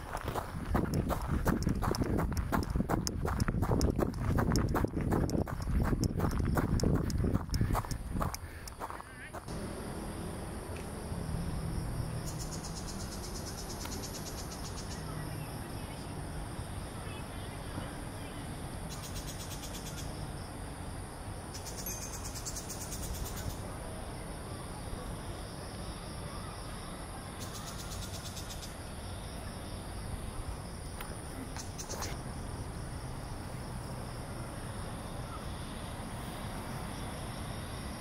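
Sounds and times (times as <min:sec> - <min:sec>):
low outdoor rumble: 0:00.0 - 0:13.8
insects droning: 0:00.0 - 0:38.0
insect pulsing trills: 0:00.4 - 0:15.1.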